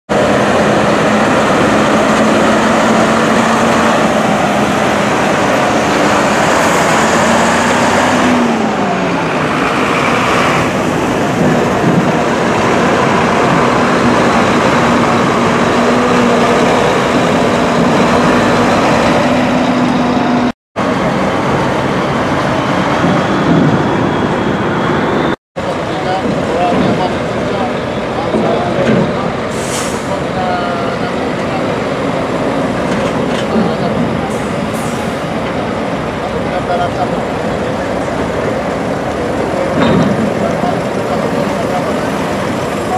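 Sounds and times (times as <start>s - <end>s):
diesel trucks driving past: 0.1s - 42.9s.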